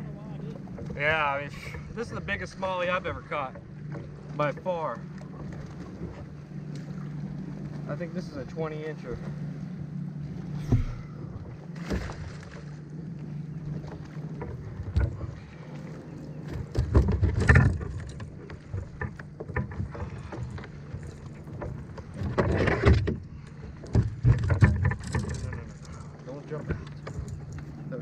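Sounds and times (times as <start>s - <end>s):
steady low hum: 0.0s - 28.0s
knocks and scraping on kayak hull: 10.2s - 28.0s.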